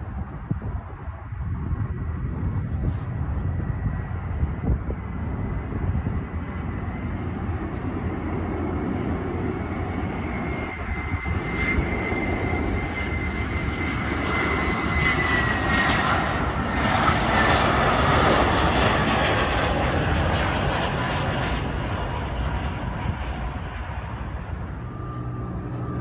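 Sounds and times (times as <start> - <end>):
jet airliner passing overhead: 0.0 - 26.0.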